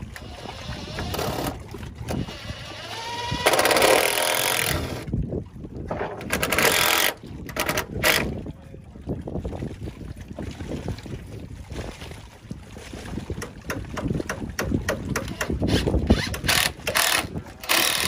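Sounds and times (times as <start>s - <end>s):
cordless drill whining: 2.2s - 5.0s.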